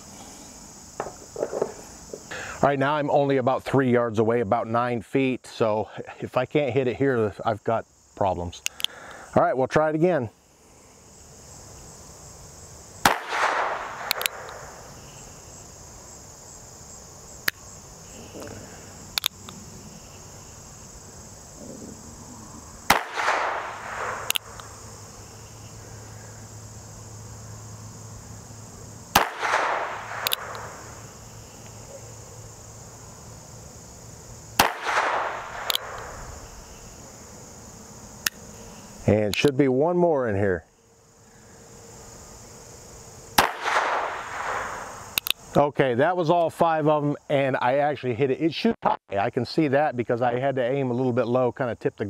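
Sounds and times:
crickets chirring: 0.0 - 52.0
small sharp clicks: 8.6 - 9.2, 13.1 - 14.7, 18.4 - 19.6, 22.9 - 24.7, 29.2 - 30.8, 34.6 - 36.1, 38.2 - 38.4, 43.4 - 45.5
revolver gunshots with echo: 13.0 - 14.8, 22.9 - 24.6, 29.1 - 30.9, 34.6 - 36.1, 43.4 - 44.9.

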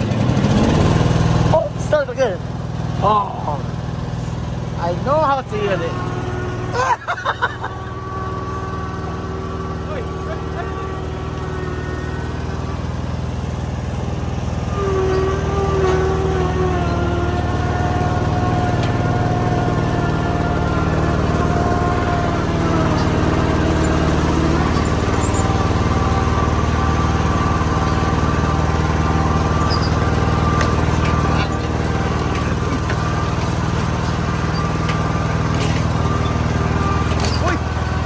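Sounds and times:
ride-on lawn mower engine: 0.0 - 38.0.

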